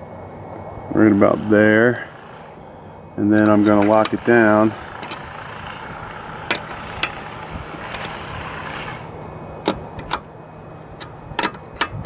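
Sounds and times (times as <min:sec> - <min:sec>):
steady rushing noise: 0:00.0 - 0:12.0
clicks and knocks of tightening: 0:03.4 - 0:09.0, 0:09.6 - 0:10.3, 0:11.0 - 0:12.0.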